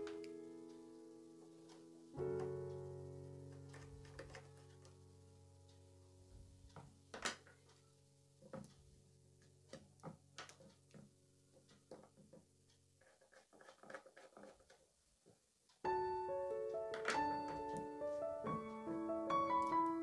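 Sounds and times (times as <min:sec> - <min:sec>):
piano music: 0:00.0 - 0:07.2, 0:15.8 - 0:20.0
faint background music: 0:00.0 - 0:13.0, 0:15.8 - 0:20.0.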